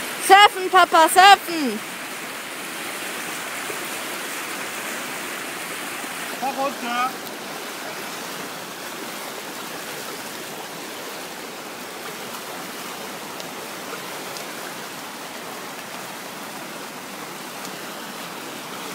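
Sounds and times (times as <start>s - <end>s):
whitewater rushing: 0.0s - 18.9s.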